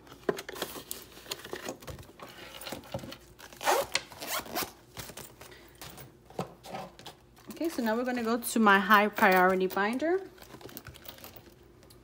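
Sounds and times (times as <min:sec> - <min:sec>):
zipper rasping shut: 0:03.6 - 0:04.8.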